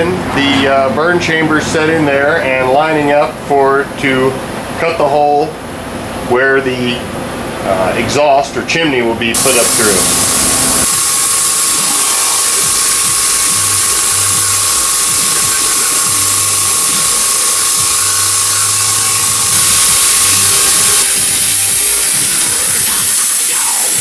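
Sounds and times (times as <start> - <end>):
plasma cutter hissing: 9.3 - 24.0.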